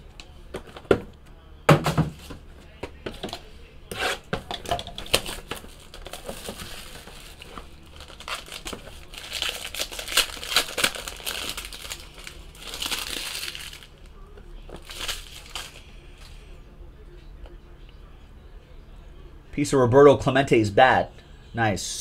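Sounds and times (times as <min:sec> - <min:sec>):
foil pack tearing and crinkling: 0:05.0 - 0:14.0, 0:14.8 - 0:15.8.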